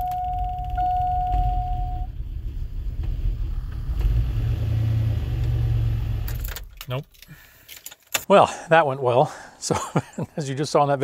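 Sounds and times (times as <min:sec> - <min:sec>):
dashboard warning chime: 0:00.0 - 0:02.1.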